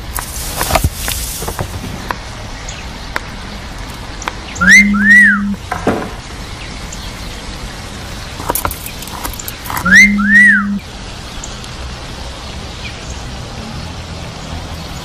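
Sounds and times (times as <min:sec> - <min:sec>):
wolf-whistle ringtone: 0:04.6 - 0:05.6, 0:09.8 - 0:10.8.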